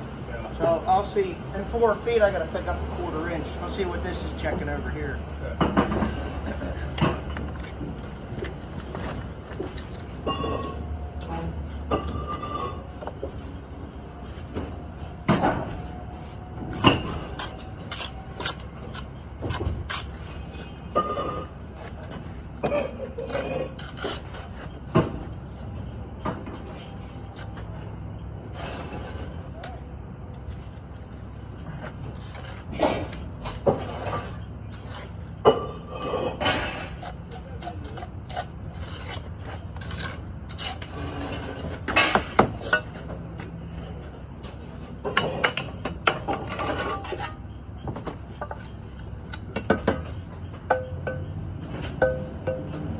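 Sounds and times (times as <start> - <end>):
trowel scraping brick: 36.8 - 42.0.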